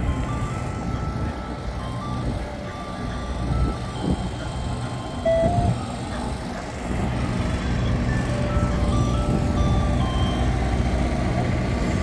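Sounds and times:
vehicle engine humming: 0.0s - 12.0s
tinkling electronic jingle: 0.4s - 6.4s.

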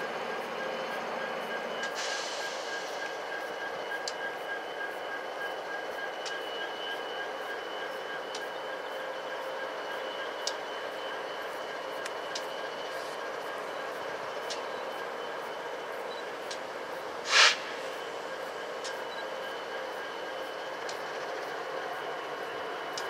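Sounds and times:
diesel locomotives idling: 0.0s - 23.0s
short loud hiss: 17.3s - 17.8s.

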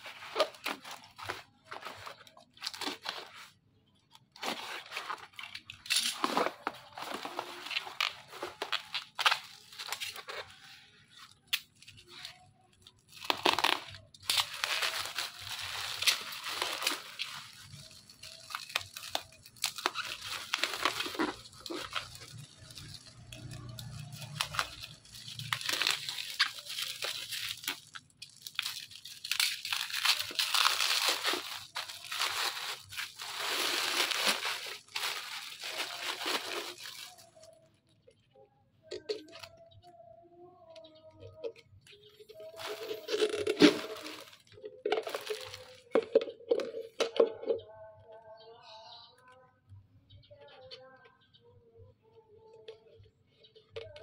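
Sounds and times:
bubble wrap crinkling: 0.0s - 37.7s, 42.0s - 47.6s.

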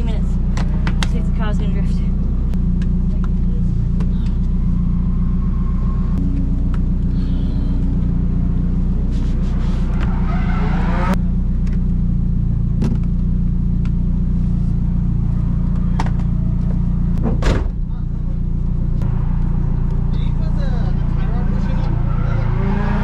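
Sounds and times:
car engine and road drone: 0.0s - 23.0s
rising whine: 4.5s - 11.9s, 18.6s - 23.0s.

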